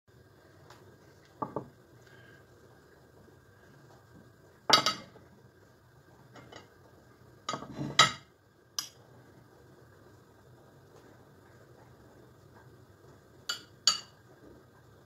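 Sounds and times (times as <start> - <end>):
dishes and spoon clinking on wood: 4.7 - 5.2, 7.5 - 9.0, 13.5 - 14.2.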